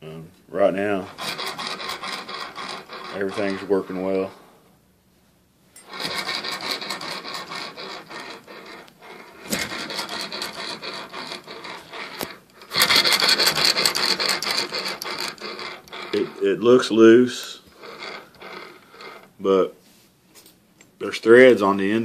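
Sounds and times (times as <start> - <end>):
piston rasping in metal cylinder: 0.9 - 3.9, 5.8 - 16.5, 17.4 - 19.4.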